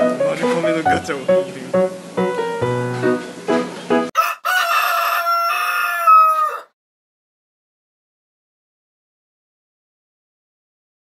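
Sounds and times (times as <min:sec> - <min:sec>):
rooster crowing: 0:04.2 - 0:06.8.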